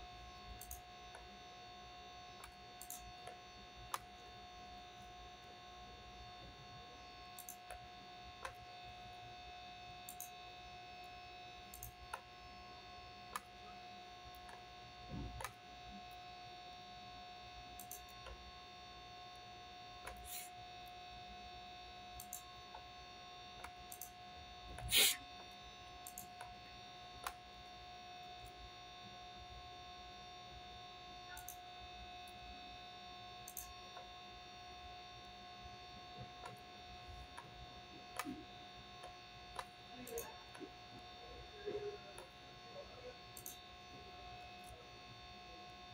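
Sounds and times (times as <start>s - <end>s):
electrical hum: 0.0s - 45.9s
mouse and keyboard clicks: 2.4s - 4.1s, 26.0s - 26.4s.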